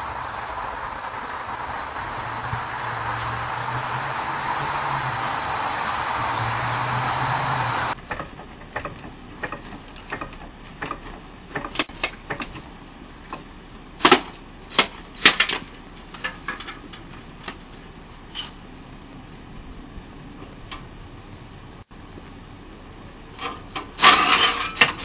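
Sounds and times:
steady hiss: 0:00.0 - 0:08.0
tool clicks and metallic knocks: 0:08.0 - 0:12.7.

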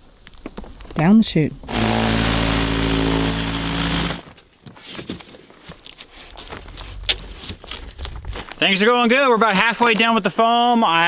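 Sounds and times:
reciprocating saw cutting foam: 0:01.7 - 0:04.2.

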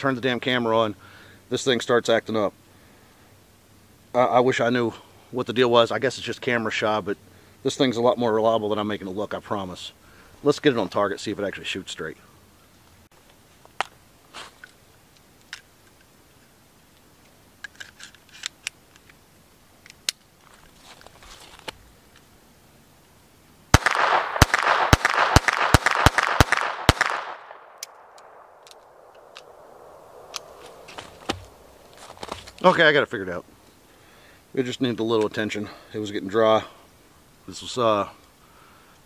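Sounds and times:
pistol shots: 0:23.7 - 0:30.8
pistol handling clicks: 0:23.8 - 0:30.8.

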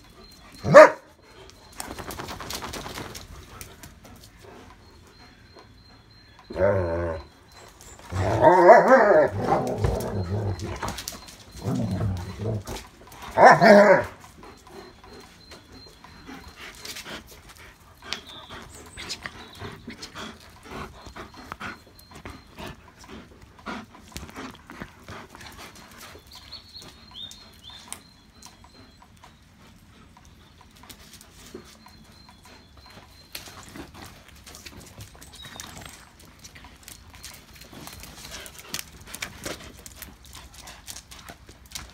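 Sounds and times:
dogs play-growling: 0:01.4 - 0:41.9.

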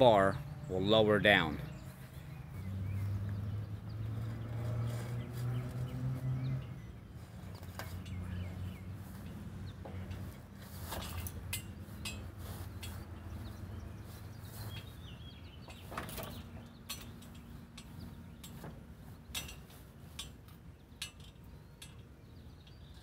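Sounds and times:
metallic clinks and knocks: 0:07.4 - 0:08.4, 0:09.8 - 0:13.1, 0:15.7 - 0:22.8.

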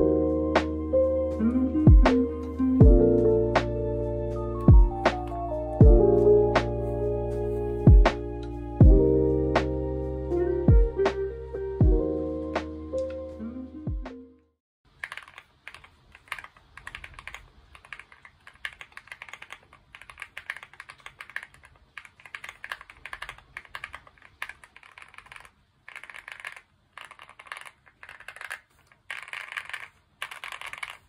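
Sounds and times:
mechanical keyboard typing: 0:14.9 - 0:31.0.

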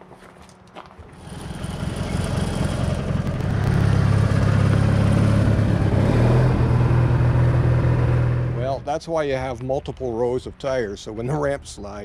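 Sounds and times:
atv engine driving past: 0:01.1 - 0:08.8.

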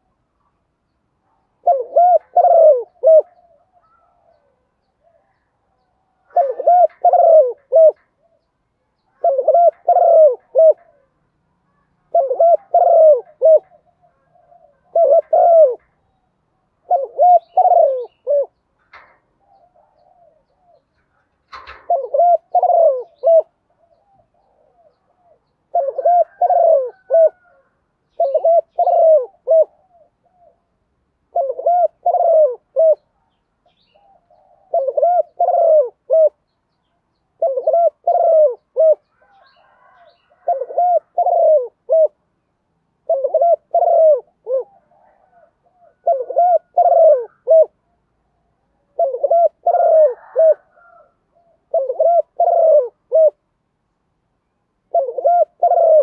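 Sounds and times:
dove cooing: 0:01.3 - 0:16.1, 0:16.7 - 0:36.5, 0:37.3 - 0:42.2, 0:43.0 - 0:48.0, 0:48.8 - 0:53.5, 0:54.8 - 0:56.0.

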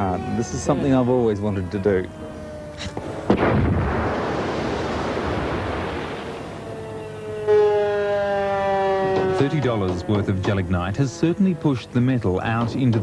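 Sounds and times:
underwater explosion bang: 0:03.2 - 0:06.6.

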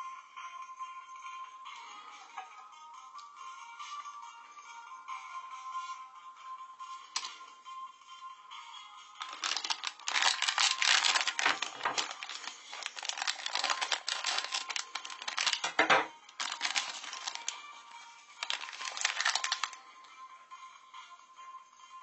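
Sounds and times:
background music: 0:00.0 - 0:22.0
wrapper crinkling and tearing: 0:09.2 - 0:17.6, 0:18.4 - 0:19.8.

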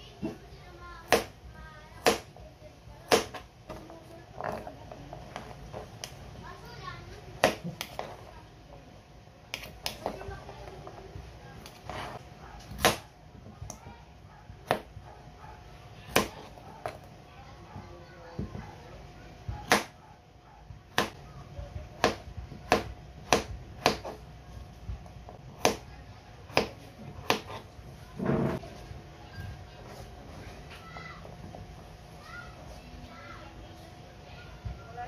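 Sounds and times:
knife chopping on cutting board: 0:03.1 - 0:03.5, 0:07.4 - 0:08.2, 0:11.6 - 0:13.1, 0:14.6 - 0:14.9, 0:16.1 - 0:17.1, 0:19.5 - 0:20.0, 0:20.9 - 0:21.2, 0:22.0 - 0:24.2, 0:25.6 - 0:25.9, 0:26.5 - 0:27.7.

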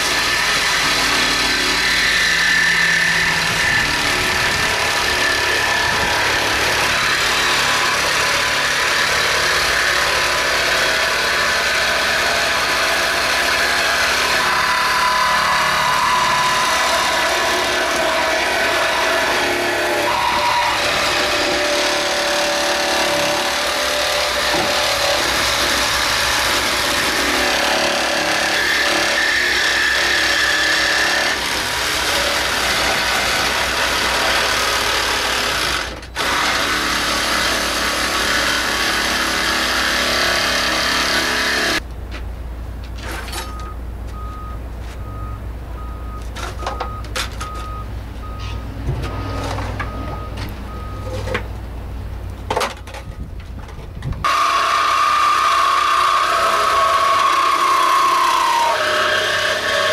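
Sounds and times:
power tool running: 0:00.0 - 0:41.8, 0:54.2 - 0:59.9.

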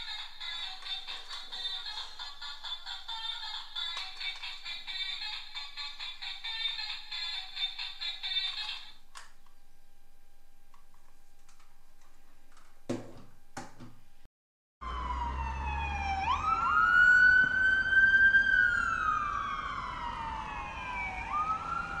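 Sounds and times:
ambulance siren wailing: 0:14.8 - 0:22.0.

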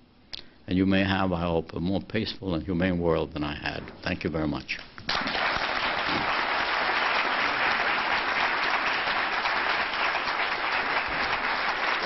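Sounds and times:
large audience applauding: 0:05.1 - 0:12.0.

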